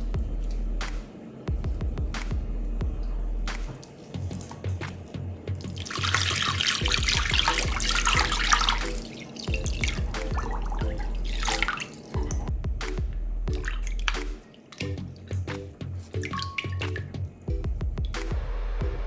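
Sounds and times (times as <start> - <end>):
background music with beat: 0.0 - 19.0
water pouring into glass bowl: 5.7 - 12.2, 16.2 - 17.1.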